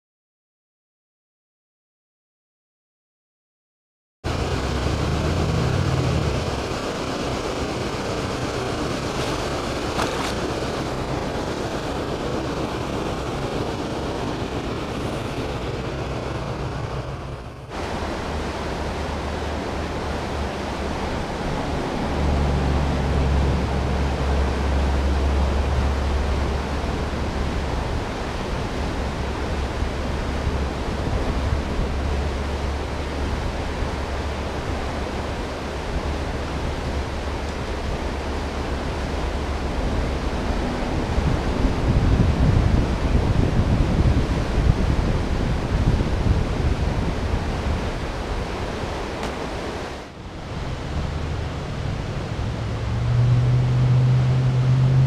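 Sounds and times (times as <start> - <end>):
deep rumble: 4.3 - 11.5
churning water rushing: 4.3 - 55.0
wind on microphone: 4.3 - 55.0.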